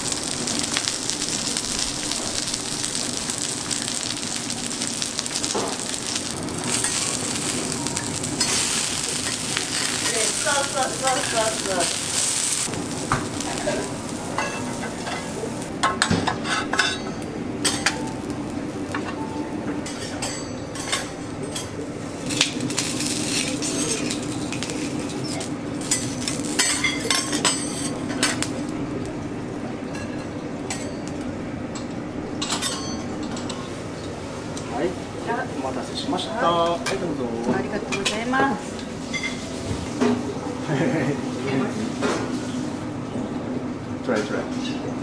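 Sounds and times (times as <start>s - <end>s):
vegetables sizzling: 0.0s - 43.0s
metal spatulas scraping griddle: 16.1s - 17.9s.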